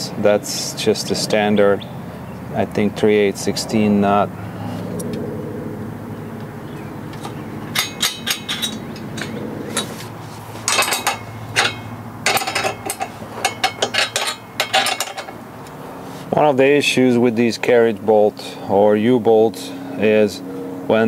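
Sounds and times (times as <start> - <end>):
nuts and washers clinking: 6.4 - 15.8.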